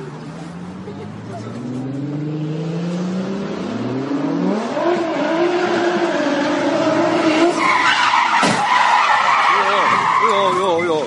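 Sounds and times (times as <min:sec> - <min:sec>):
car engine revving hard: 0:01.6 - 0:07.7
tyres squealing: 0:05.9 - 0:11.0.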